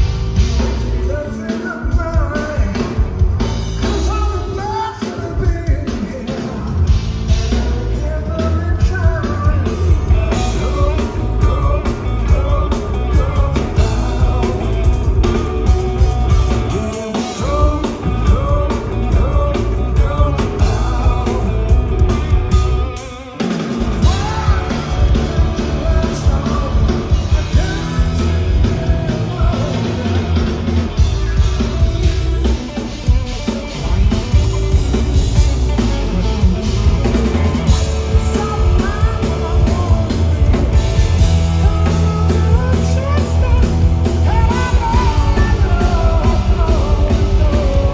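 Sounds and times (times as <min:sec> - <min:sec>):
drum kit: 0:00.0 - 0:47.9
electric bass: 0:00.0 - 0:47.9
electric guitar: 0:00.0 - 0:47.9
person singing: 0:00.4 - 0:36.3, 0:36.9 - 0:47.9.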